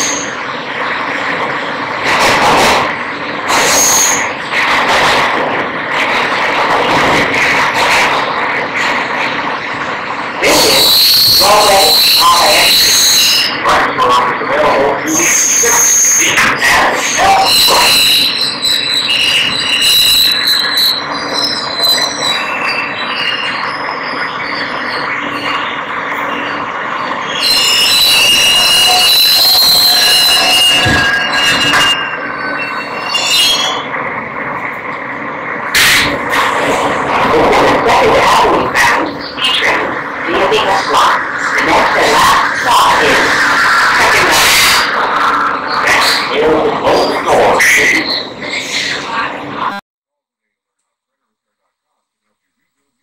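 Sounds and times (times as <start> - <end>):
high thin squeal: 0.0 - 0.5, 2.4 - 4.6, 10.3 - 34.0, 35.7 - 49.3
subway car rumbling: 0.0 - 49.8.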